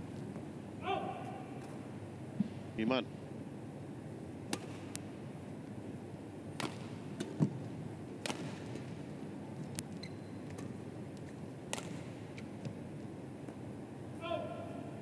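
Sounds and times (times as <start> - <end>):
arena hum: 0.0 - 15.0
racket striking shuttlecock: 6.5 - 7.6, 8.2 - 9.0, 11.7 - 12.5.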